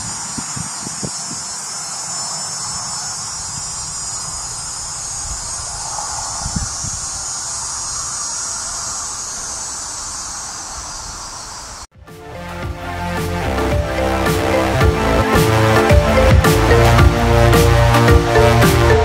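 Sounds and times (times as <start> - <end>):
cicada high-pitched whine: 0.0 - 11.9.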